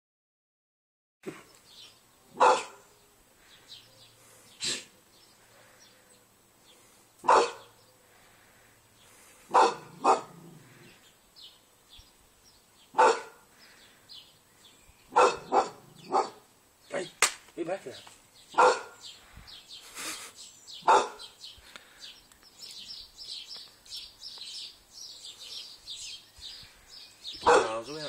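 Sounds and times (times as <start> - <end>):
dog barking: 2.3 - 2.9, 7.2 - 7.8, 9.5 - 10.5, 13.0 - 13.4, 15.1 - 16.5, 18.6 - 19.0, 20.8 - 21.4, 27.4 - 27.8.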